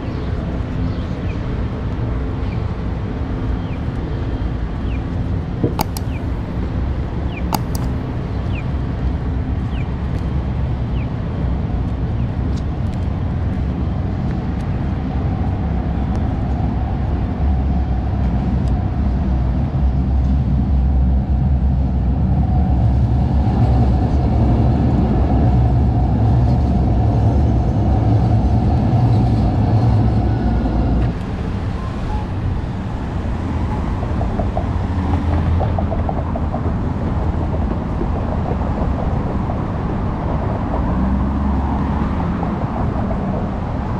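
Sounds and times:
vehicle rumble and hum: 0:00.0 - 0:43.9.

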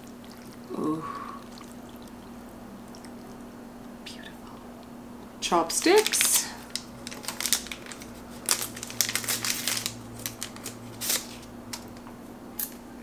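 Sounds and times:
paper sleeve crinkling and tearing: 0:05.8 - 0:11.5.

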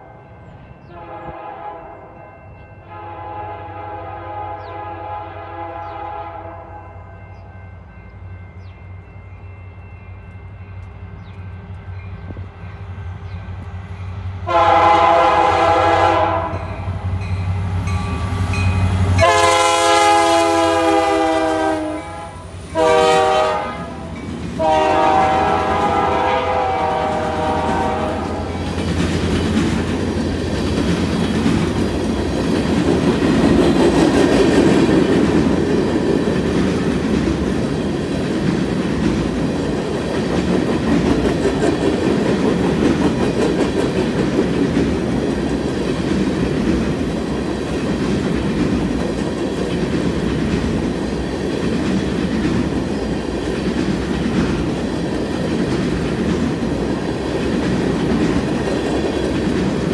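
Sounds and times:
low rumble of locomotive: 0:00.0 - 0:59.9
locomotive horn blasts: 0:00.9 - 0:07.1, 0:14.4 - 0:16.9, 0:18.5 - 0:28.6
train wheels clicking over rails: 0:24.2 - 0:59.9.

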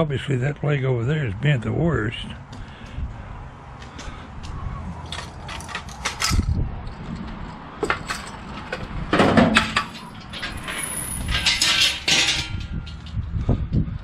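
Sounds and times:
metal frame clanking and scraping: 0:05.0 - 0:13.6.

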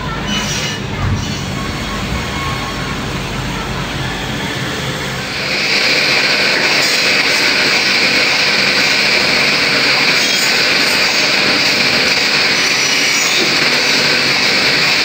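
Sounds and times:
saw running high-pitched: 0:04.8 - 0:15.0.

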